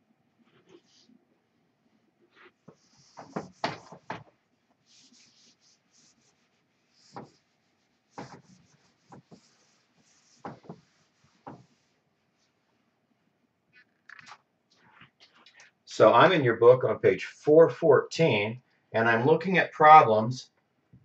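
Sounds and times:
cloth rubbing on whiteboard: 0.4s - 1.2s, 2.2s - 12.9s.

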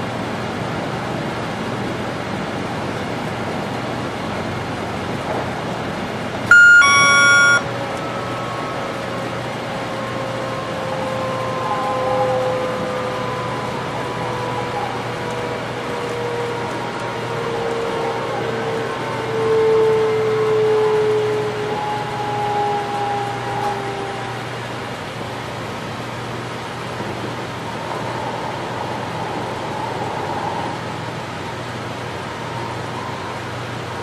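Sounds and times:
signal chime: 6.5s - 7.6s.

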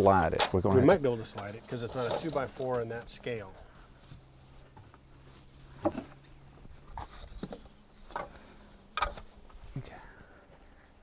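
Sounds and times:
faint high insect chirring: 0.0s - 11.0s
low steady bee buzz: 0.8s - 11.0s
wooden knocks and bumps: 5.8s - 6.2s.

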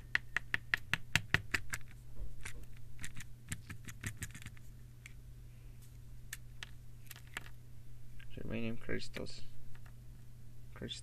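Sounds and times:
small crystals clicking on paper: 0.0s - 4.6s.

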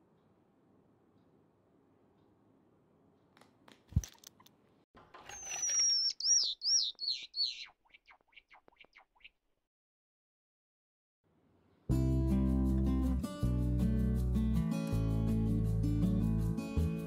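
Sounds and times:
sparrow long sliding call: 5.3s - 7.7s
short bird chirps: 5.3s - 9.4s.

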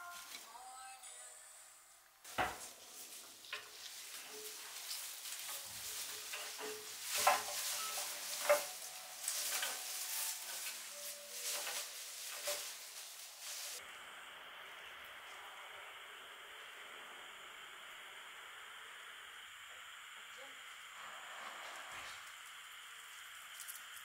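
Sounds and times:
crackling rustling handling noise: 2.3s - 13.8s.

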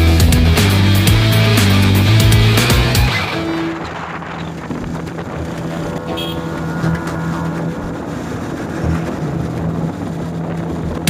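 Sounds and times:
motorcycle engine cruising: 0.3s - 11.0s
wind rushing over microphone: 3.1s - 11.0s.

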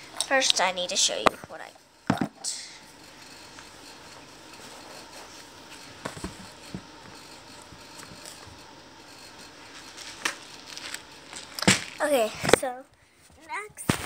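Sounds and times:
light knocks and thumps: 6.0s - 8.2s.

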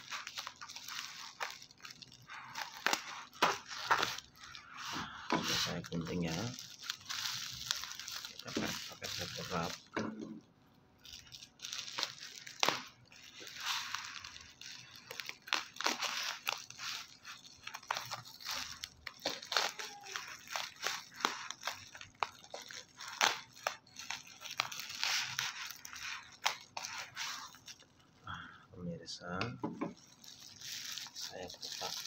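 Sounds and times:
plastic crinkling: 0.0s - 32.0s.

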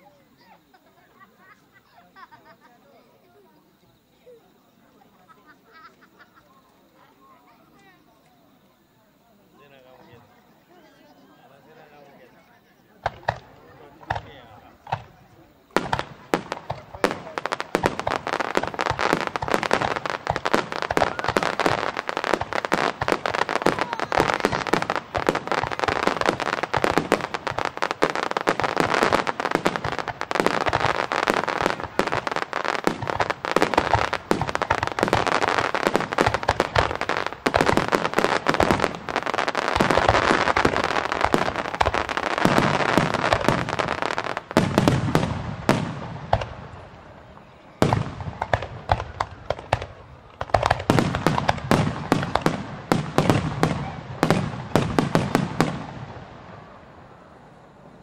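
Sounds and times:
fireworks bursting: 12.1s - 58.0s.

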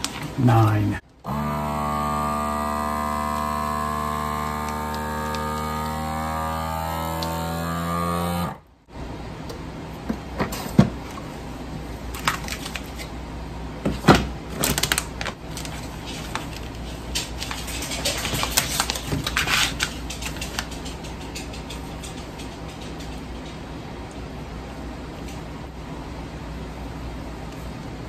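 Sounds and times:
vacuum sealer pump hum: 0.0s - 12.6s
plastic bag crinkling: 14.5s - 20.8s.

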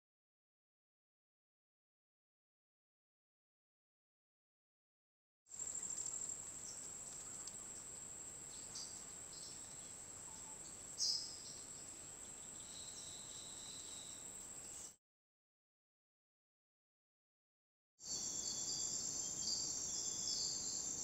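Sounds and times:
high-pitched insect drone: 18.1s - 21.0s.

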